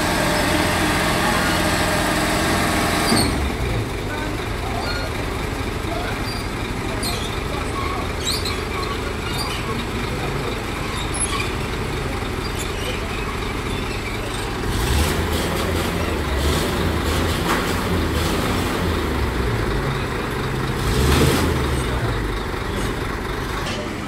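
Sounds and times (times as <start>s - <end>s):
diesel truck engine running: 0.0s - 24.0s.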